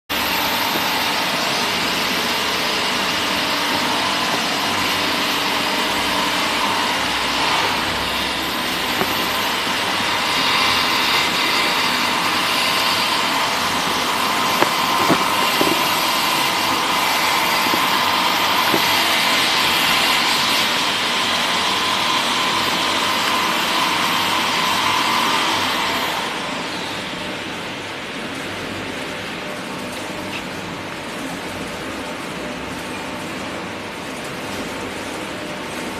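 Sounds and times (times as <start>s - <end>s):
blender machine motor running: 0.1s - 26.6s.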